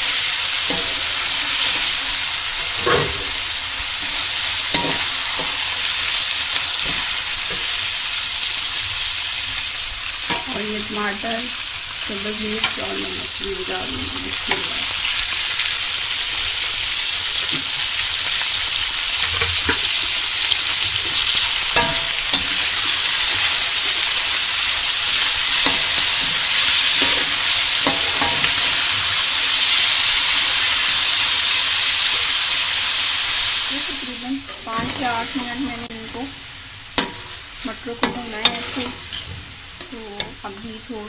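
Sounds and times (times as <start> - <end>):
vegetables sizzling in oil: 0.0 - 41.0
metal spatula stirring: 4.7 - 5.7, 34.5 - 35.4, 37.0 - 40.4.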